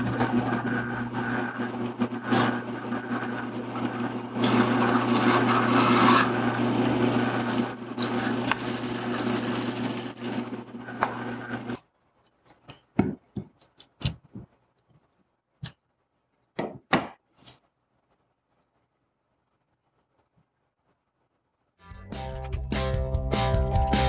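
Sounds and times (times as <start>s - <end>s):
drill press boring into wood: 4.4s - 10.6s.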